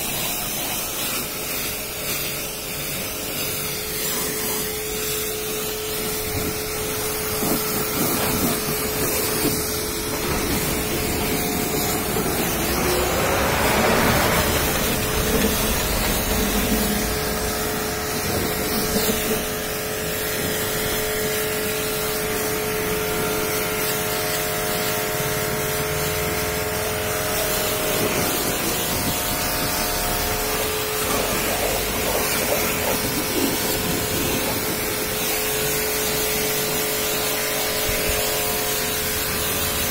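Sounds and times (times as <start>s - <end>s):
pressure washer pump humming: 0.0s - 39.9s
water jet hissing: 0.0s - 39.9s.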